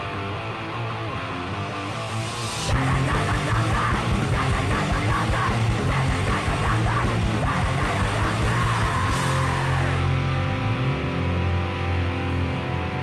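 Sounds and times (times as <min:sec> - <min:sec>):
distorted guitar chord ringing: 0:00.0 - 0:13.0
punk rock music: 0:00.0 - 0:13.0.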